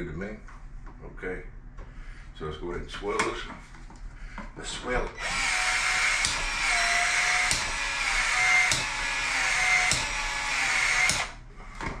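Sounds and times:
power tool motor running: 0:05.2 - 0:11.4
sharp tool clicks: 0:05.3 - 0:11.4.

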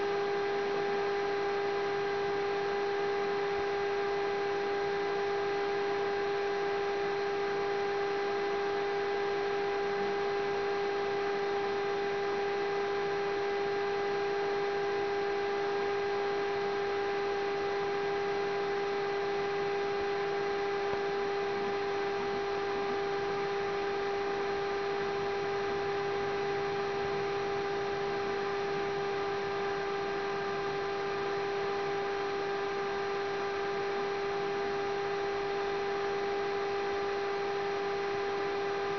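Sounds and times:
electrical hum: 0:00.0 - 0:38.9.

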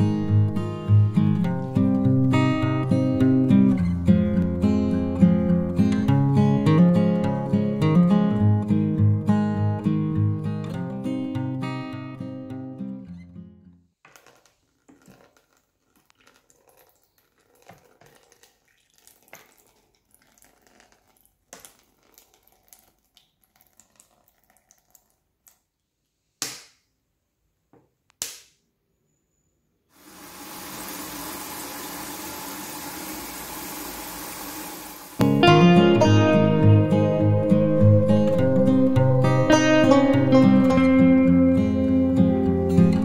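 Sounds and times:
liquid splashing and trickling: 0:14.2 - 0:25.6.

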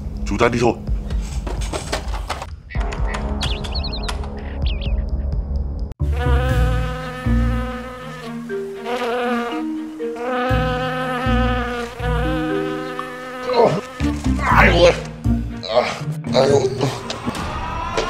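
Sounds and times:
loud insect-like buzz: 0:06.0 - 0:15.1.

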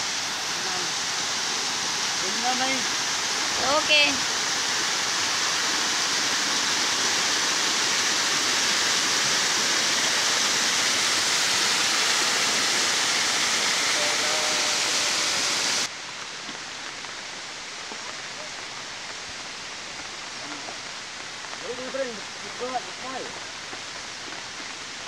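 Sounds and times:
waterfall rushing: 0:00.0 - 0:25.0.

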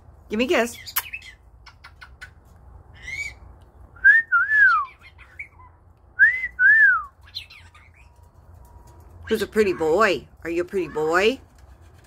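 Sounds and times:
parrot chirp: 0:00.7 - 0:03.5, 0:04.7 - 0:05.9, 0:07.1 - 0:08.3.

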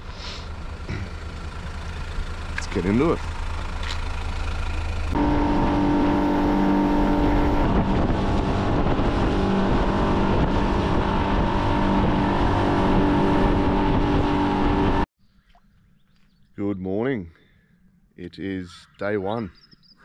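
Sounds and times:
outboard motor running: 0:00.0 - 0:15.1.

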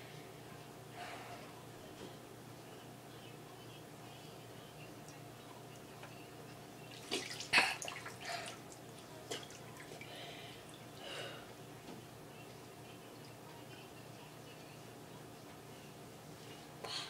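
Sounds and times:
water splashing in bowl: 0:06.9 - 0:10.1.

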